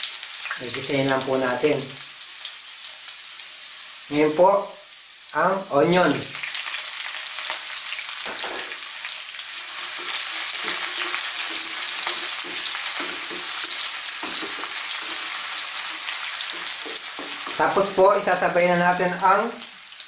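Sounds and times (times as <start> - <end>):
onion and garlic sizzling in oil: 0.0 - 20.0
wooden spatula scraping a wok: 9.6 - 18.0.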